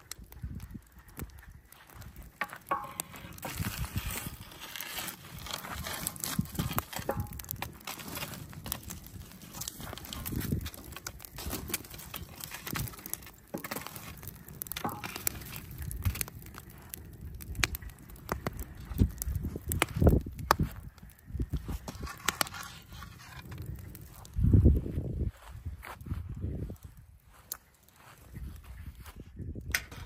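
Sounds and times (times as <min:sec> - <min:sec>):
wood fire crackling and popping: 0:00.0 - 0:30.0
stick knocking and scraping logs: 0:01.1 - 0:20.9, 0:21.5 - 0:24.3, 0:29.7 - 0:30.0.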